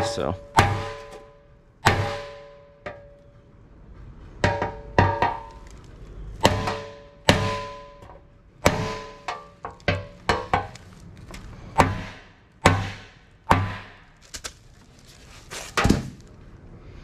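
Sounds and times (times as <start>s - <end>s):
hammer striking steel fender: 0.0s - 3.2s, 4.4s - 5.6s, 6.4s - 10.8s, 11.8s - 14.0s.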